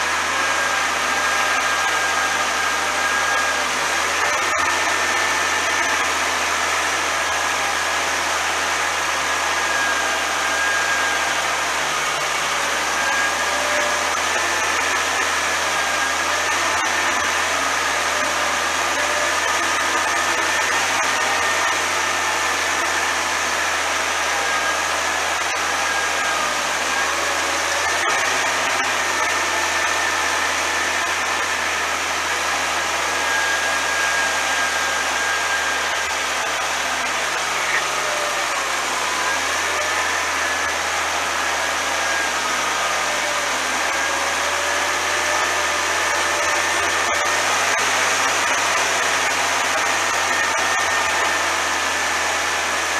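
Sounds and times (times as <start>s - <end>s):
steady high whine: 0.0s - 52.9s
tractor diesel engine under load: 0.0s - 52.9s.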